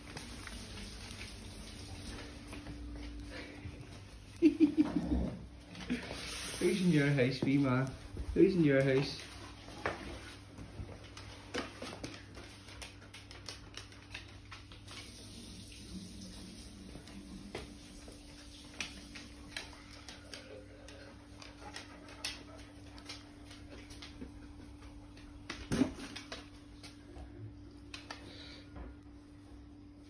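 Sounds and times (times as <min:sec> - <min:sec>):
dog claws clicking on wooden floor: 0:11.0 - 0:15.0, 0:18.8 - 0:26.6.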